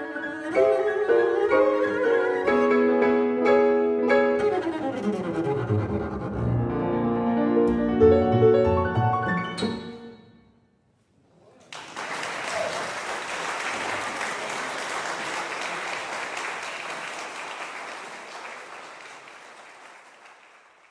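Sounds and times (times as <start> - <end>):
double bass and piano chord: 6.3 - 10.0
audience applause: 11.6 - 20.9.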